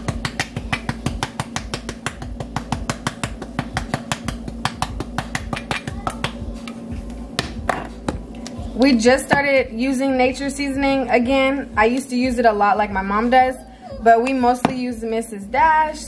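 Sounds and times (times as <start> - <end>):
hand tapping spice shaker: 0.0 - 8.2.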